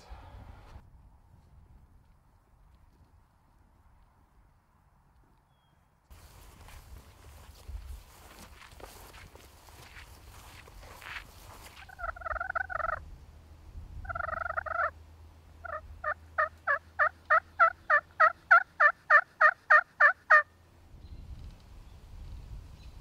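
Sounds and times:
turkey rattling calls: 0:11.7 - 0:13.0, 0:14.0 - 0:15.0, 0:15.6 - 0:20.5
turkey yelps: 0:11.8 - 0:13.0, 0:14.0 - 0:14.9, 0:15.6 - 0:20.5.

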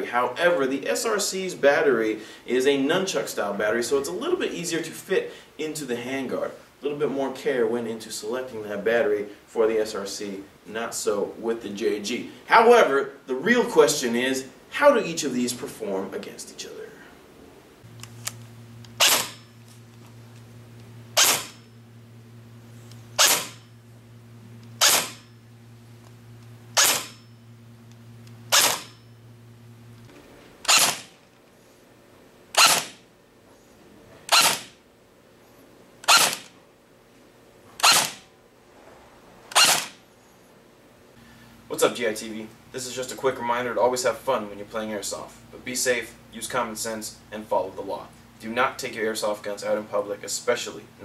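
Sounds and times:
airsoft gun shots: 0:19.0 - 0:19.4, 0:21.2 - 0:21.6, 0:23.2 - 0:23.6, 0:24.8 - 0:25.3, 0:26.8 - 0:27.2, 0:28.5 - 0:29.0, 0:30.7 - 0:31.2, 0:32.6 - 0:33.0, 0:34.3 - 0:34.8, 0:36.1 - 0:36.5, 0:37.8 - 0:38.2, 0:39.5 - 0:40.0.

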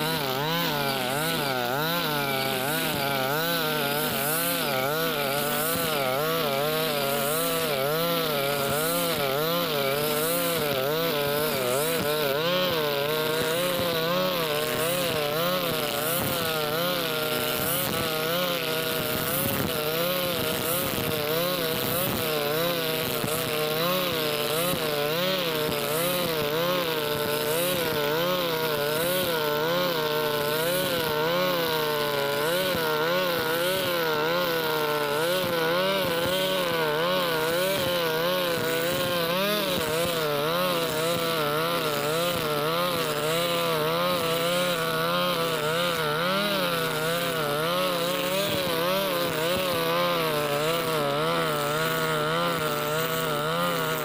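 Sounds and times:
brush cutter engine at high throttle: 0:00.0 - 0:54.0.

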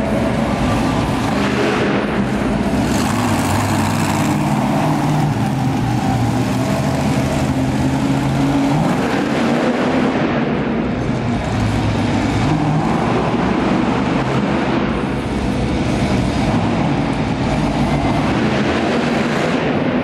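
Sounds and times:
monster truck engine revving: 0:00.0 - 0:20.0.

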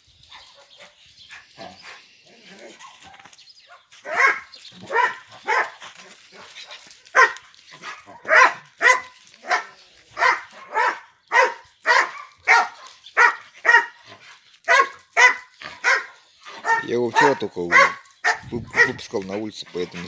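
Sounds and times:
dog barking: 0:02.7 - 0:14.0, 0:14.7 - 0:19.0.

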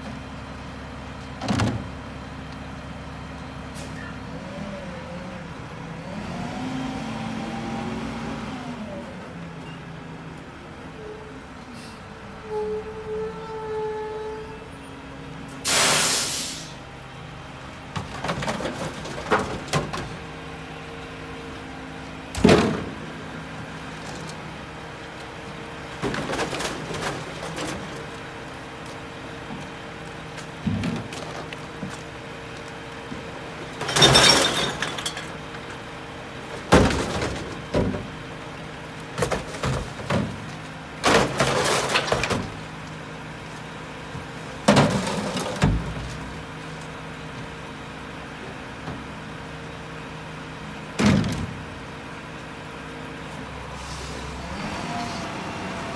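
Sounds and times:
garbage truck idling: 0:00.0 - 0:06.6, 0:08.6 - 0:55.9
short hiss: 0:15.7 - 0:16.8
glass breaking: 0:33.8 - 0:35.3
bottles and cans crashing: 0:33.8 - 0:35.4, 0:41.0 - 0:42.5.

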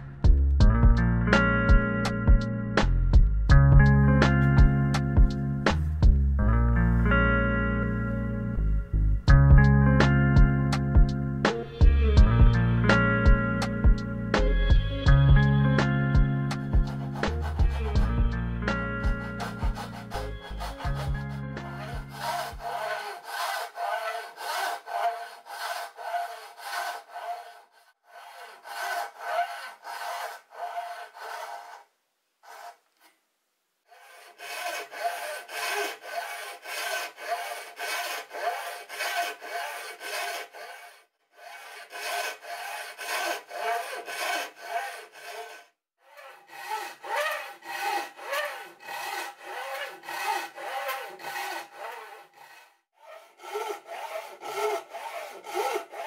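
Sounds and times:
hand saw cutting wood: 0:14.4 - 0:33.1, 0:33.9 - 0:56.0.

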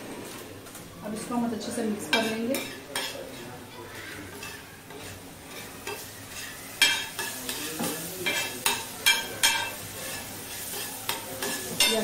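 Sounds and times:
faint frying sizzle: 0:00.0 - 0:12.0
spatula scraping a flat pan: 0:02.1 - 0:03.6, 0:04.3 - 0:12.0
spatula clinking on metal pan: 0:06.8 - 0:07.6, 0:08.2 - 0:09.8, 0:10.5 - 0:12.0.

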